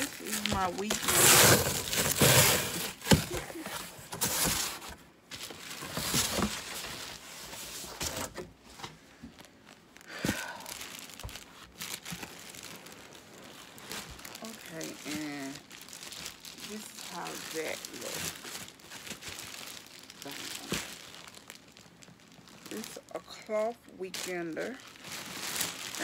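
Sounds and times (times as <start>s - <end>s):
plastic packaging crinkling: 0.0s - 26.0s.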